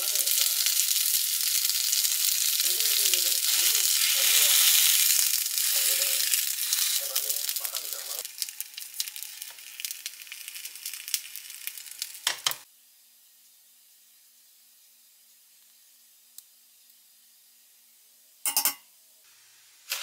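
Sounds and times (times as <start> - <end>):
rice cakes sizzling in a pan: 0.0 - 18.5, 19.1 - 20.0.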